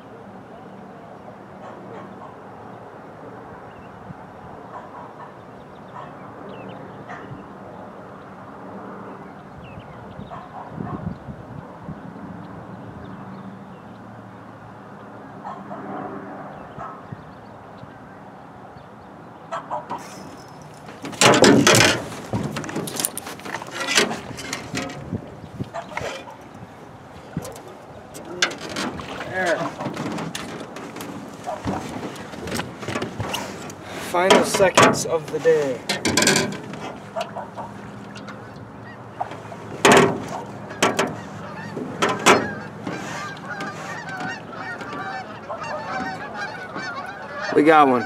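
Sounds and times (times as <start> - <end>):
geese honking: 19.4 - 25.0, 25.7 - 26.6, 27.9 - 48.0
knocks and clatter in metal boat: 19.8 - 47.8.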